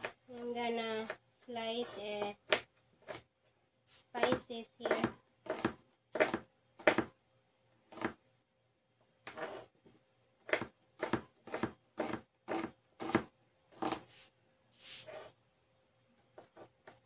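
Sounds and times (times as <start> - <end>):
knife chopping on cutting board: 4.2 - 7.1, 7.9 - 8.2, 10.5 - 14.0.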